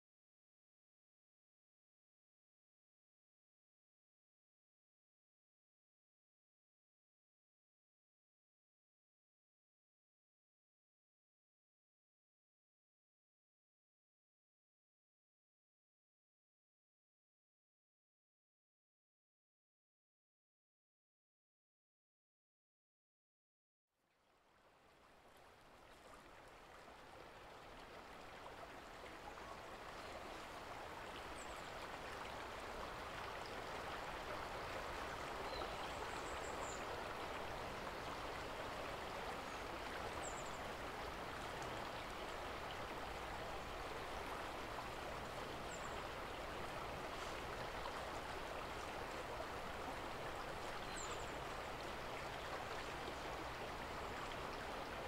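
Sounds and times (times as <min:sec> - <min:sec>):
river water rushing: 0:25.0 - 0:55.0.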